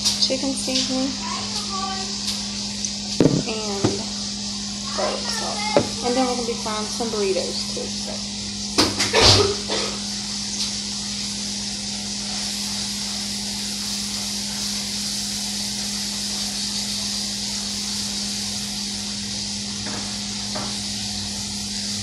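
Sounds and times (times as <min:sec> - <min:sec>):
food sizzling in a frying pan: 0:00.0 - 0:22.0.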